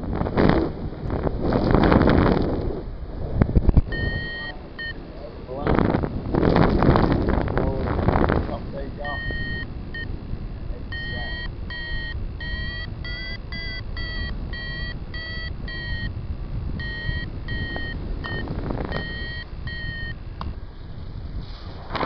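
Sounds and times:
wind rumble on microphone: 0.0 - 22.0
variometer short beeps: 3.9 - 5.2, 9.0 - 10.1, 10.8 - 16.1, 16.8 - 20.2.

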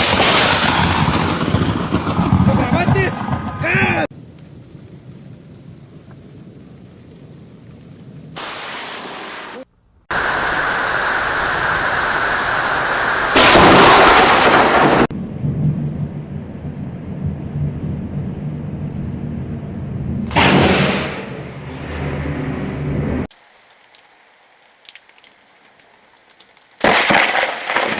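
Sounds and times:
loud thunderclap: 0.0 - 6.8, 11.3 - 19.2, 20.0 - 22.0, 26.8 - 27.9
rain: 3.6 - 20.4, 23.2 - 27.9.

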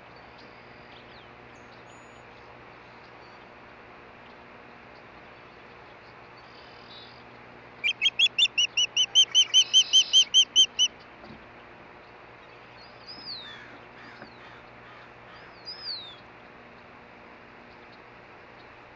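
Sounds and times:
bird whistled chirps: 7.8 - 10.9.

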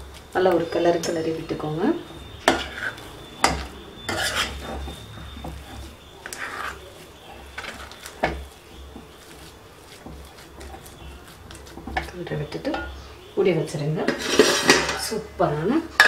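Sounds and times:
metal spoon scraping pan: 2.3 - 13.1, 14.0 - 15.2.

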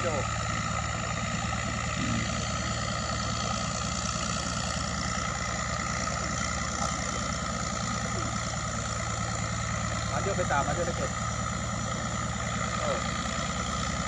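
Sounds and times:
boat motor running: 0.0 - 14.0.

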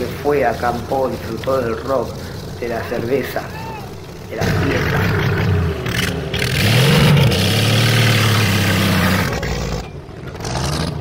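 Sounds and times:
tyres spinning on dirt: 0.0 - 11.0
pickup engine revving hard: 4.4 - 9.8.

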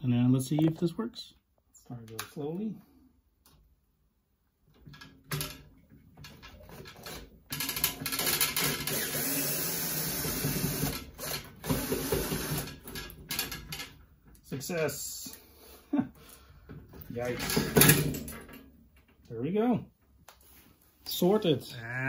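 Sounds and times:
cordless drill running: 8.1 - 12.8.

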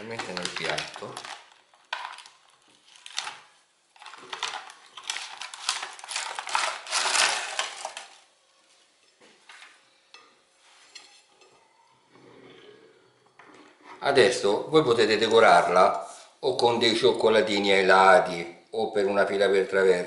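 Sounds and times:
plastic film crinkling: 0.0 - 8.3.

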